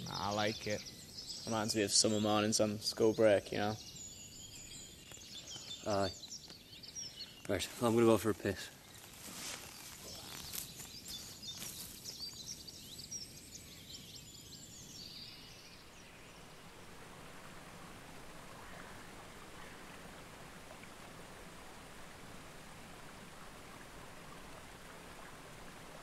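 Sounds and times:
birds singing: 0.0s - 16.8s
steady outdoor hiss: 0.0s - 26.0s
rustles: 5.0s - 14.9s.

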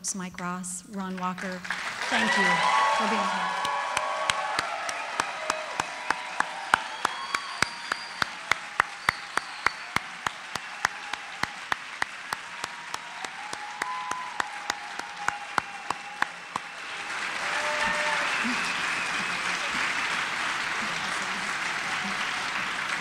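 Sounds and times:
audience applauding: 1.4s - 23.0s
nearby person clapping: 1.6s - 23.0s.

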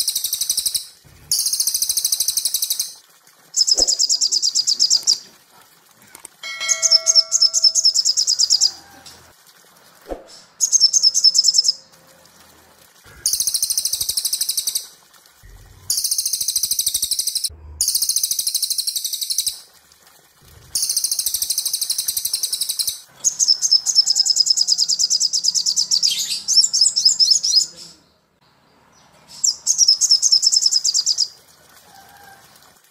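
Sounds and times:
bell-like chime: 6.4s - 8.0s
songbirds trilling: 6.7s - 8.8s.

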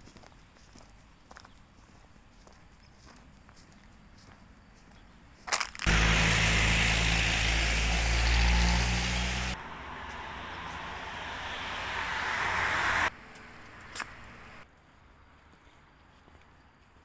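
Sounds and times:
engine hum with strong hiss: 5.9s - 14.6s
rushing noise: 5.9s - 14.6s.

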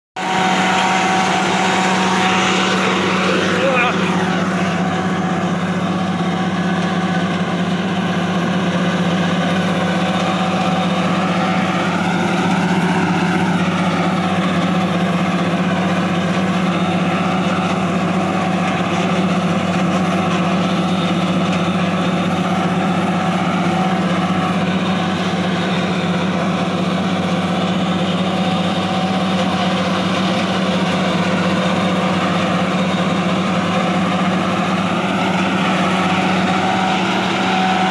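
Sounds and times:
forage harvester drone: 0.2s - 37.9s
tractor engine under load: 0.2s - 37.9s.

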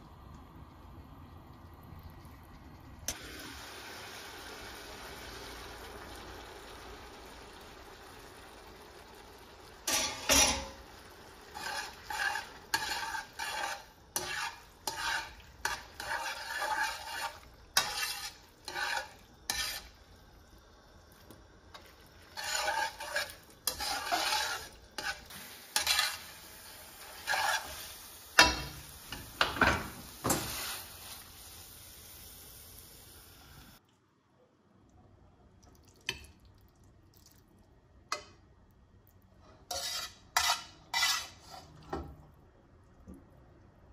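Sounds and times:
utensil scraping and clinking pan: 9.9s - 10.8s, 11.5s - 19.9s, 21.8s - 26.4s, 27.0s - 27.8s, 39.7s - 41.8s.

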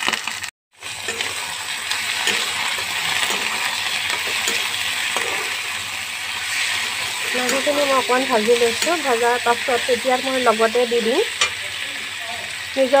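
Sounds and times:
chicken sizzling in oil: 0.0s - 13.0s
spatula clinking and scraping pan: 0.9s - 5.7s, 6.4s - 11.7s.

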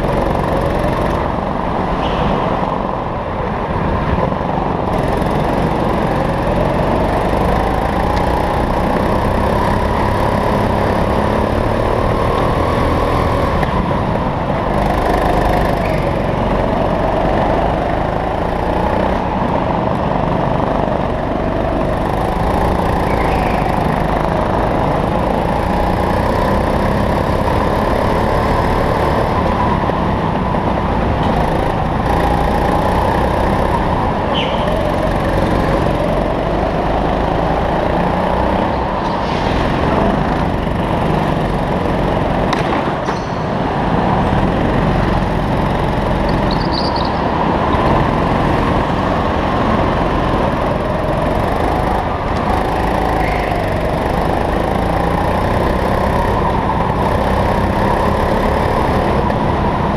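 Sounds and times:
go-kart engine revving: 0.0s - 59.9s
high squeals: 15.6s - 16.6s, 22.1s - 24.3s, 34.3s - 35.4s.

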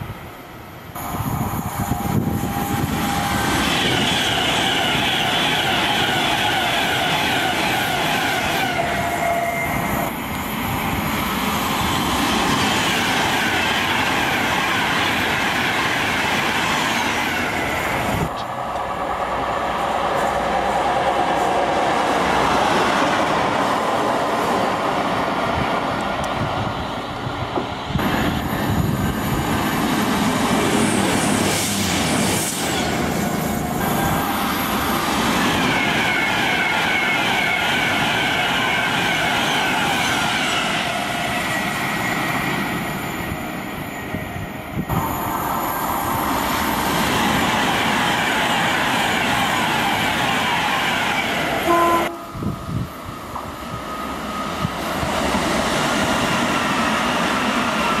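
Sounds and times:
diesel locomotive passing: 0.0s - 58.0s
trains passing on rails: 0.0s - 58.0s.

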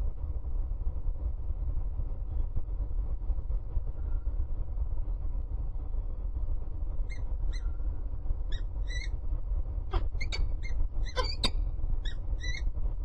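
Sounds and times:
low rumble of city traffic: 0.0s - 13.0s
high bird calls: 8.5s - 9.1s, 9.9s - 12.7s
sharp squeaks falling in pitch: 9.9s - 12.6s.

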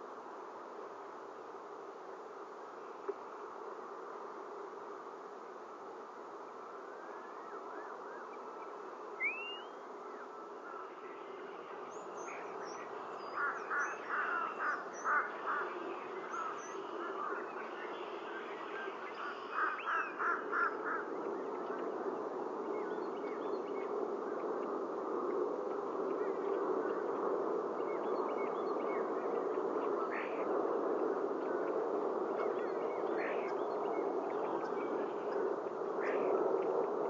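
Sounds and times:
steady buzzing hiss: 0.0s - 22.8s
starlings whistling: 9.2s - 9.8s.

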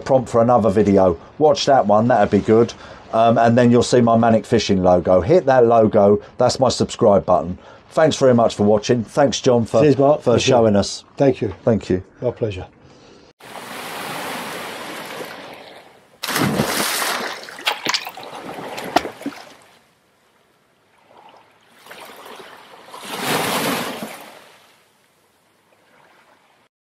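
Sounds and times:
surf washing: 13.4s - 19.8s, 21.1s - 24.8s
water splash: 13.4s - 19.9s, 21.0s - 24.8s.

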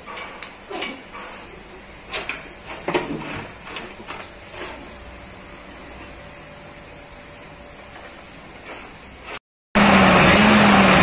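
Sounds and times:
metallic clanks and clinks: 0.0s - 4.8s.

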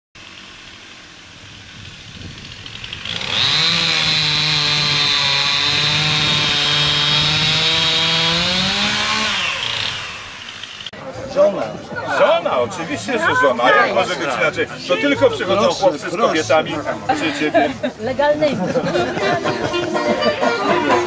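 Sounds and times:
small engine revving: 0.2s - 11.0s.

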